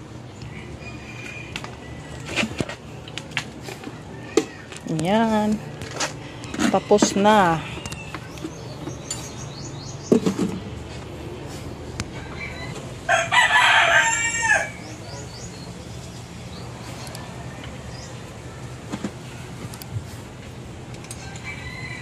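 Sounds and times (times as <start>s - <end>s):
rooster crowing: 0.5s - 2.3s, 12.1s - 15.0s, 21.2s - 22.0s.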